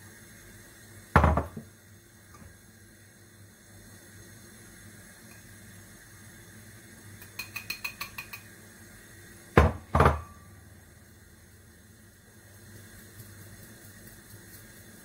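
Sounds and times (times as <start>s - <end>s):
bowl knocking on worktop: 1.2s - 1.7s, 9.6s - 10.4s
ceramic bowl clinking on sieve: 7.2s - 8.5s.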